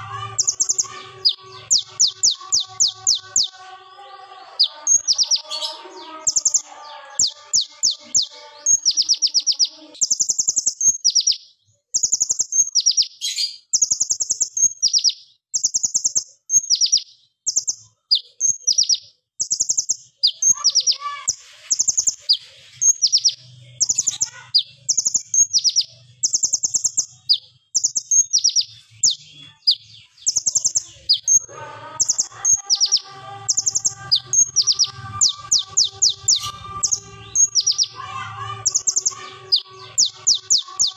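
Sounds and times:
bird trilling high ticking notes: 0.0 - 3.8, 4.5 - 11.4, 12.0 - 21.1, 21.7 - 40.9.

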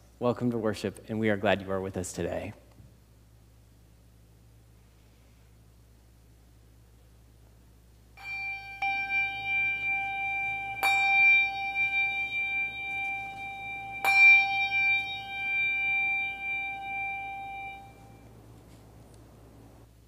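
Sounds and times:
brass handbell ringing: 8.2 - 18.3.

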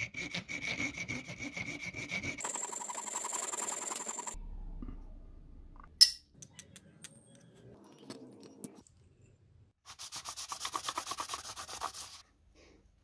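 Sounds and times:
metal scraping on sandpaper: 0.0 - 4.4, 9.9 - 12.2.

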